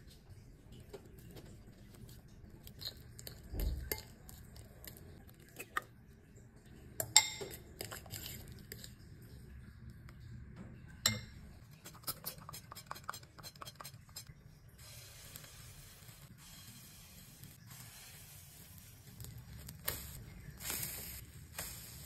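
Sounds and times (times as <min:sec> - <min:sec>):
fork mashing bananas in bowl: 0:11.8 - 0:14.3.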